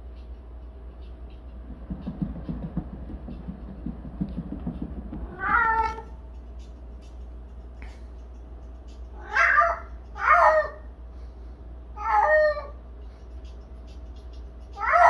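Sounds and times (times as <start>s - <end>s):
cat wheel rumbling: 0.7s - 10.9s
cat meowing: 5.2s - 6.2s, 9.2s - 10.9s, 12.0s - 12.8s, 14.8s - 15.0s.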